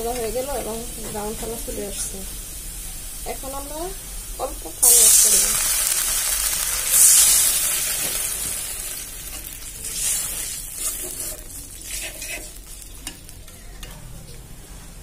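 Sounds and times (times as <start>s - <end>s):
paste sizzling in oil: 4.4s - 13.4s
metal spatula scraping a pan: 9.3s - 14.0s.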